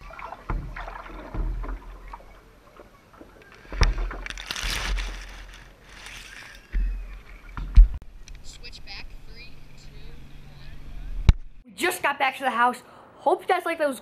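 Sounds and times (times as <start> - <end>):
dull bumps: 0.0 - 8.0
water lapping against paddleboard: 0.0 - 8.0
grass rustling over camera: 3.3 - 7.6.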